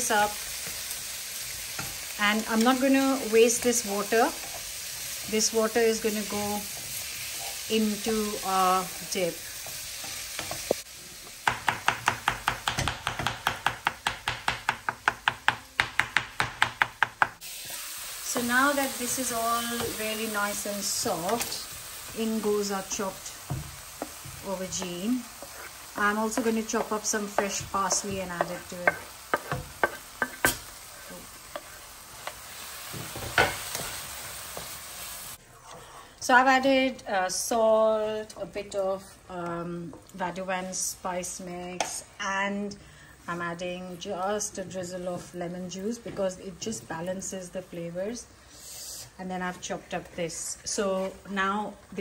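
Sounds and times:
vegetables sizzling in a frying pan: 0.0 - 52.0
utensil tapping and scraping a pan: 23.0 - 34.8.

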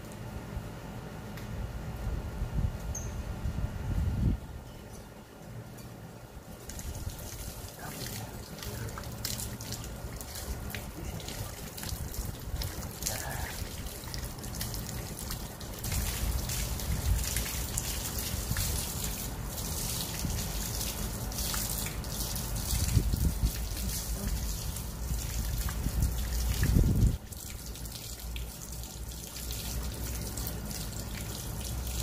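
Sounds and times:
hose water splashing on dog: 6.4 - 32.0
water dripping on tiles: 6.6 - 32.0.

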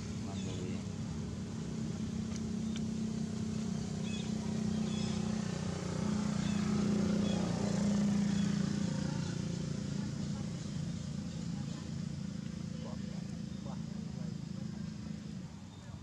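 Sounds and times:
engine running steadily: 0.0 - 16.0.

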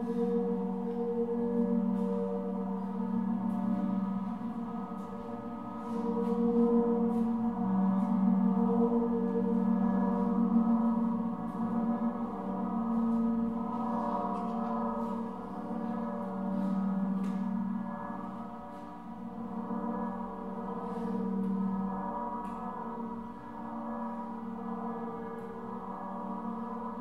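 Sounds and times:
ambient drone music: 0.0 - 27.0.

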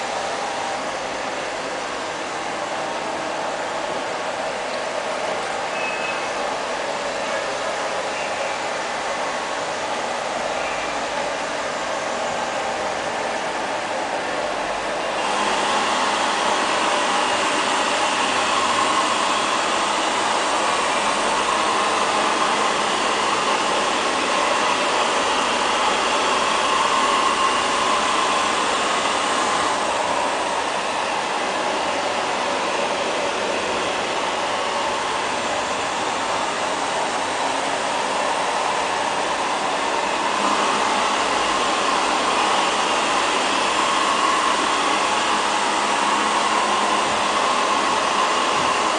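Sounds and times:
robot vacuum cleaner motor whir: 15.2 - 48.9.

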